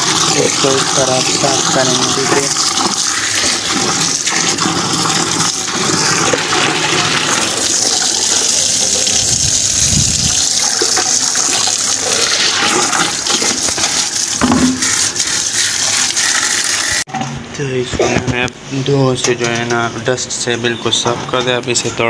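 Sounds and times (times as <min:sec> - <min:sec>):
tap water pouring into steel drum: 0:00.0 - 0:17.0.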